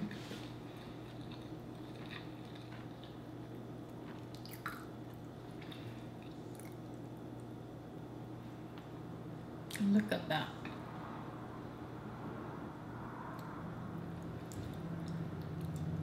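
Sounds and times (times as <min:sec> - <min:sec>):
low steady hum: 0:00.0 - 0:16.0
wet chewing and mouth sounds: 0:00.4 - 0:07.6, 0:14.2 - 0:16.0.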